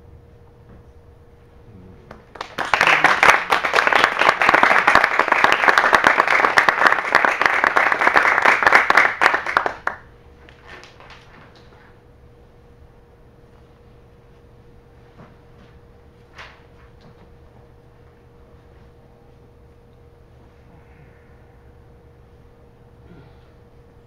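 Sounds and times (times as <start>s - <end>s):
small audience applauding: 2.1s - 11.3s.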